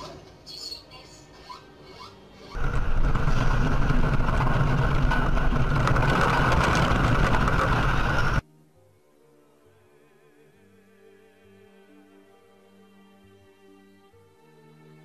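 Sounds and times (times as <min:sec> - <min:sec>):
faint music: 0:00.0 - 0:15.0
loud steady rumbling: 0:02.6 - 0:08.4.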